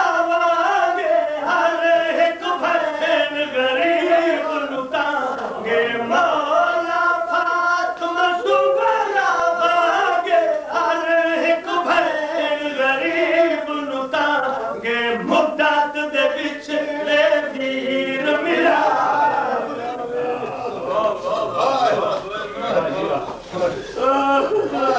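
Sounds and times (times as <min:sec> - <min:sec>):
man chanting into a microphone: 0:00.0 - 0:19.2.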